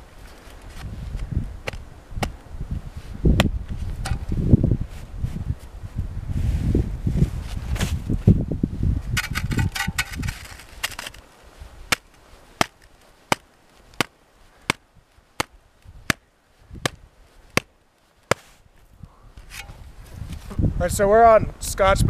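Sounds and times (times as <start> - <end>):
gloved hand tapping shovel: 11.9 - 14.8
shovel scraping snow: 18.3 - 18.6.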